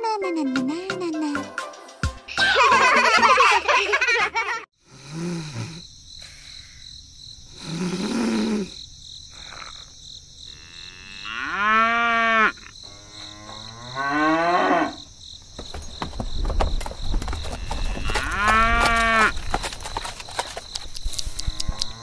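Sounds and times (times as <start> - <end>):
cattle mooing: 17.6 - 19.4.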